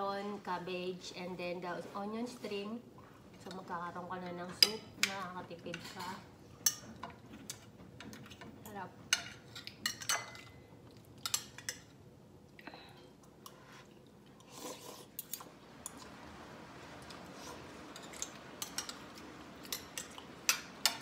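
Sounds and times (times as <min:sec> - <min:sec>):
slurping: 0:13.5 - 0:16.1.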